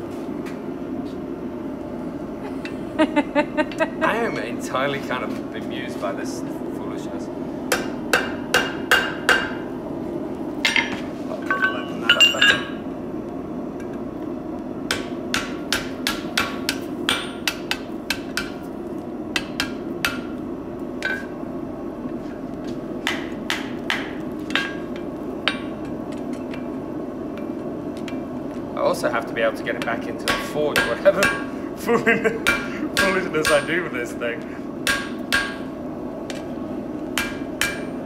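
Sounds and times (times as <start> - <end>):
steady low hum: 0.0 - 38.0
hammer striking metal on anvil: 7.7 - 9.7, 10.6 - 12.8, 14.9 - 18.6, 19.3 - 20.4, 23.0 - 26.7, 29.8 - 31.5, 32.4 - 33.9, 34.8 - 35.7, 37.2 - 38.0.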